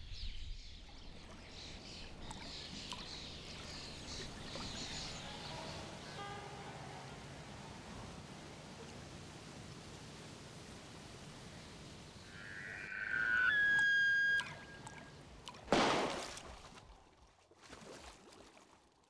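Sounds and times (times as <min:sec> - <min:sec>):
water splash: 0:00.8 - 0:06.4, 0:13.2 - 0:19.0
water sloshing: 0:00.8 - 0:11.6, 0:13.7 - 0:19.0
high whistled tone: 0:12.4 - 0:15.0.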